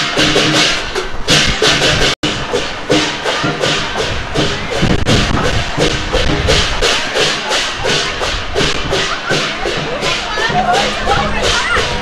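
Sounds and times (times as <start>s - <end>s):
cymbals clashing: 0.0s - 12.0s
drum beat: 0.0s - 12.0s.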